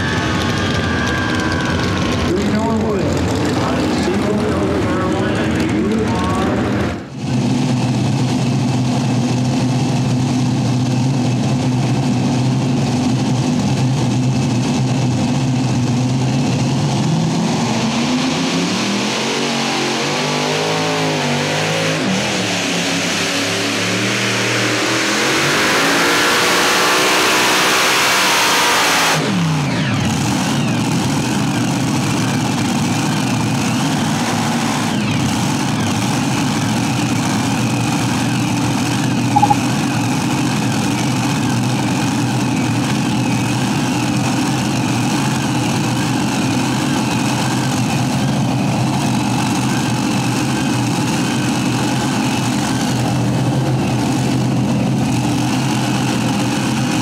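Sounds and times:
pulling tractor engines: 0.0s - 17.6s, 29.3s - 57.0s.

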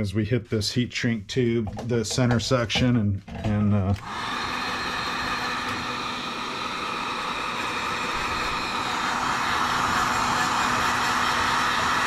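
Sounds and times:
heat gun blowing air: 4.0s - 12.0s.

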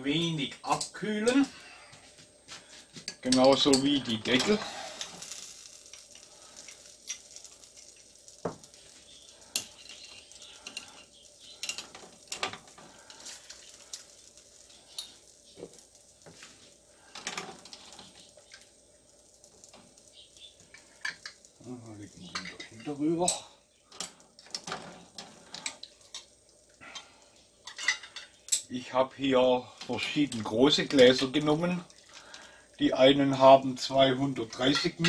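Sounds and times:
water simmering: 0.0s - 35.0s
metal tongs clinking glass jars: 3.1s - 8.0s, 9.5s - 12.8s, 22.2s - 26.3s, 27.6s - 28.7s, 34.5s - 35.0s.

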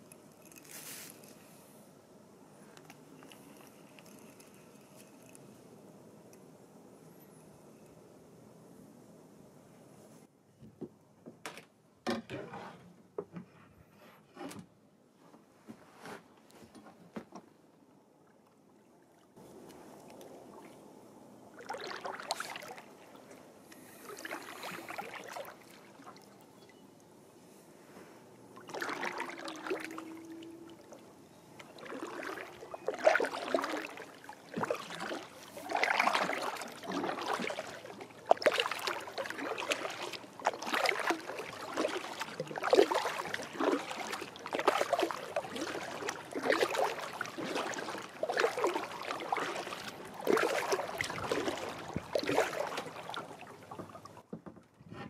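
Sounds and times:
paddle strokes splashing: 19.1s - 26.6s, 28.6s - 54.3s.

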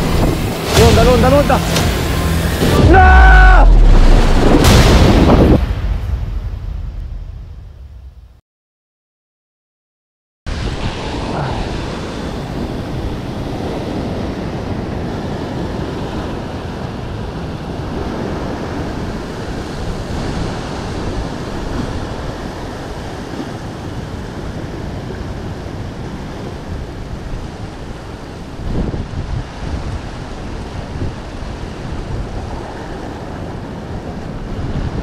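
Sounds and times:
wind buffeting microphone: 0.0s - 2.9s, 10.5s - 35.0s
ocean surf washing over rocks: 0.0s - 6.2s, 10.5s - 35.0s.

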